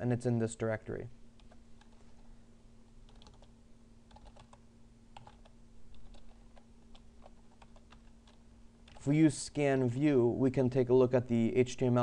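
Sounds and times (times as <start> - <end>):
faint steady hum: 0.0 - 12.0
keyboard typing: 1.4 - 2.3, 3.0 - 3.5, 4.1 - 9.1.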